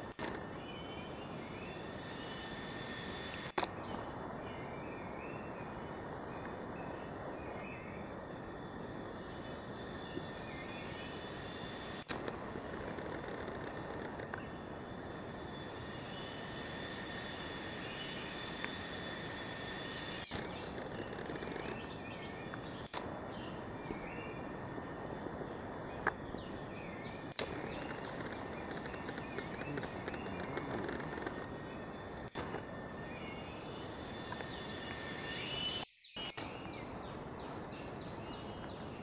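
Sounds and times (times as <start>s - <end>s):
insect drone: 0.0s - 39.0s
birds chirping: 12.6s - 24.6s, 25.8s - 39.0s.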